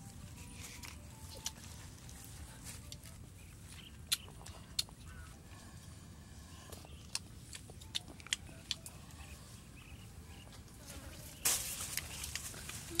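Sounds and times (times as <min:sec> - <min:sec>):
lip smacks while eating: 0:04.0 - 0:05.0.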